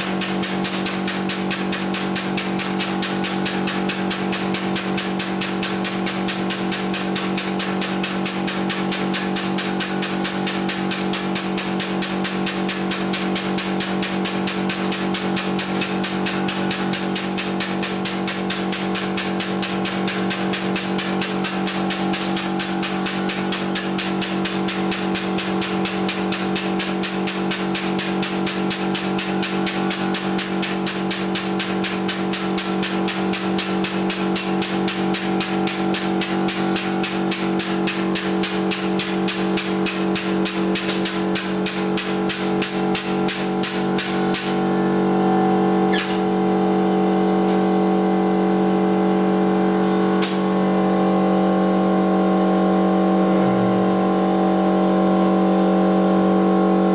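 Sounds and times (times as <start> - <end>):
rapid even clicking: 0.0 - 44.6
electric pump motor humming: 0.0 - 56.9
single sharp clicks: 50.2 - 50.4.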